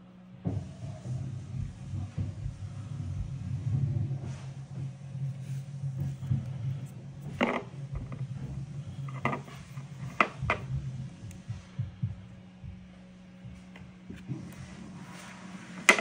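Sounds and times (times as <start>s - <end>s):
low hum: 0.0s - 16.0s.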